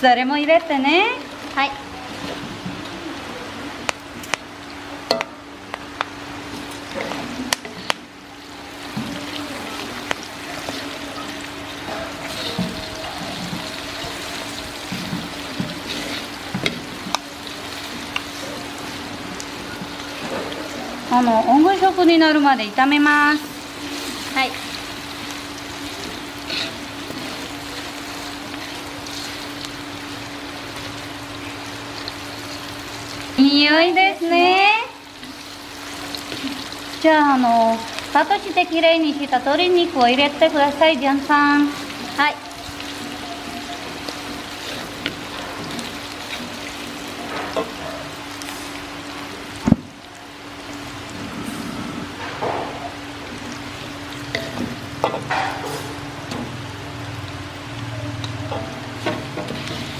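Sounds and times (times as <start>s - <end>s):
paste sizzling in a wok: 6.3s - 59.9s
metal spatula scraping wok: 26.4s - 27.6s.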